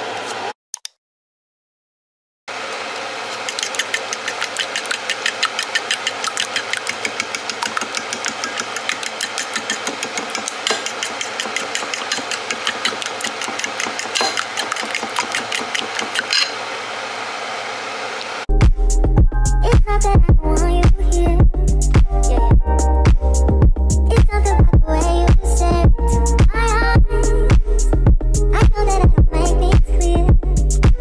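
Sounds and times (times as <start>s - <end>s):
eggs beaten in ceramic bowl: 3.4s - 16.5s.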